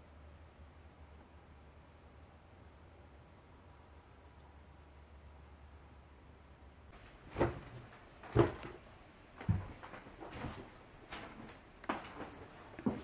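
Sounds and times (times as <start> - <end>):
footsteps on hard floor: 7.3 - 8.8, 9.4 - 13.0.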